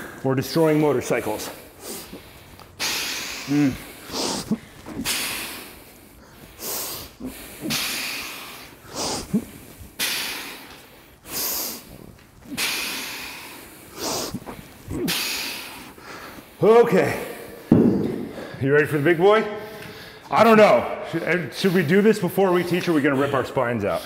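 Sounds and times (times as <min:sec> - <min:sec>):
man breathing hard: 0:01.4 - 0:16.6, 0:17.2 - 0:20.3
man grunting with effort: 0:03.5 - 0:05.2.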